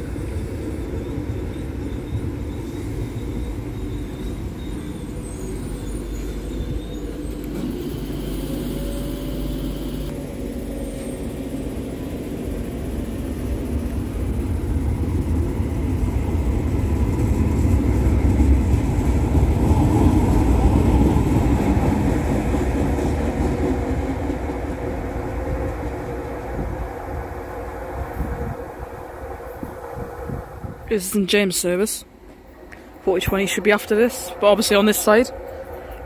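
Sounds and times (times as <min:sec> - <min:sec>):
electric train motor hum: 0:00.0 - 0:30.9
wheels rumbling on rails: 0:00.0 - 0:36.0.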